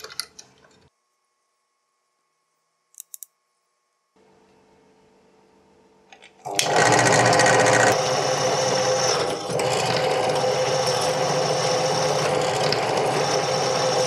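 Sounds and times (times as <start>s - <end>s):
drill press motor drilling metal: 6.5s - 14.0s.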